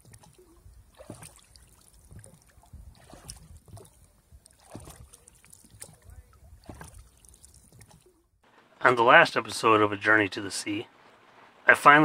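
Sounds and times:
water lapping: 0.0s - 8.3s.

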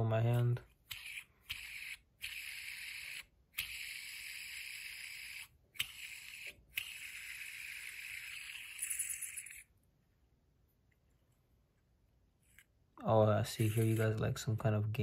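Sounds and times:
fidget spinner whirring: 0.6s - 9.8s, 13.4s - 14.2s
finger flicking spinner: 0.7s - 9.7s.

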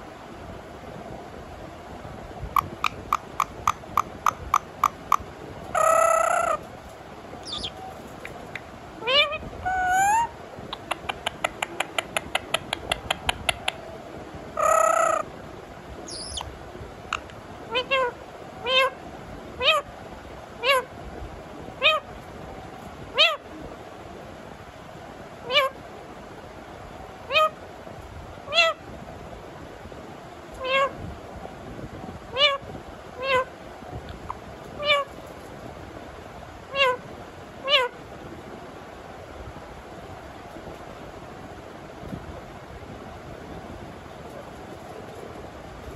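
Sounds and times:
parakeet clicking rapidly: 2.6s - 5.2s, 10.7s - 13.8s
parakeet harsh call: 2.6s - 5.2s, 5.8s - 6.6s, 7.4s - 7.8s, 9.0s - 10.3s, 14.6s - 15.3s, 16.1s - 16.5s, 17.1s - 19.0s, 20.6s - 20.9s, 25.4s - 25.8s, 27.3s - 27.6s, 30.6s - 30.9s, 32.3s - 32.6s, 33.2s - 33.5s, 34.8s - 35.1s, 36.7s - 37.0s, 37.6s - 38.0s.

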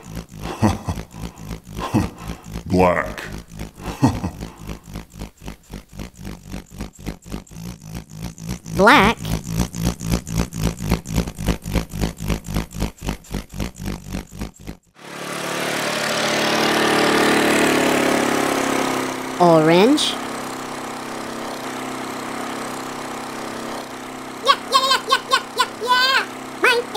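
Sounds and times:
diesel engine chugging: 0.0s - 6.8s, 15.8s - 26.9s
smooth engine hum: 0.0s - 26.9s.

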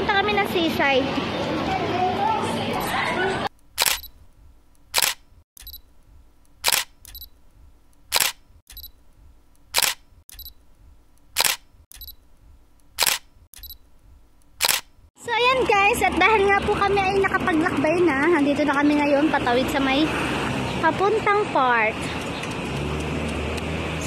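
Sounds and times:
camera shutter clicks: 3.8s - 4.2s, 4.9s - 5.8s, 6.6s - 7.3s, 8.1s - 8.9s, 9.7s - 10.5s, 11.4s - 12.2s, 13.0s - 13.8s, 14.6s - 15.0s.

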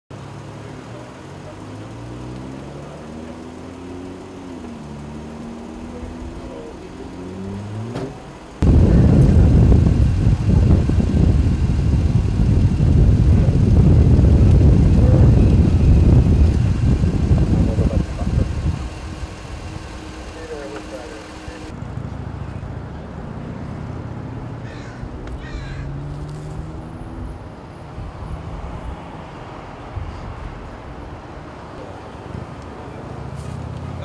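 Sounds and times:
low street noise: 0.1s - 34.0s
loud low rumble: 8.6s - 21.7s
faint voices: 14.8s - 21.8s.

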